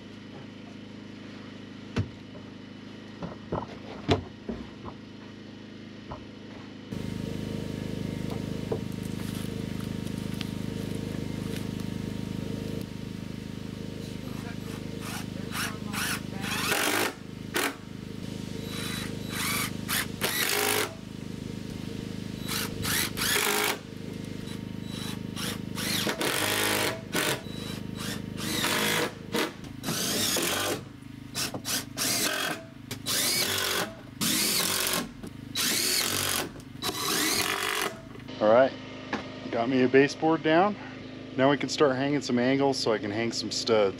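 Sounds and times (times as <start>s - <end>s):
drill driving screws into wood: 14.3s - 17.8s, 18.7s - 21.0s, 22.4s - 23.8s, 24.5s - 38.0s.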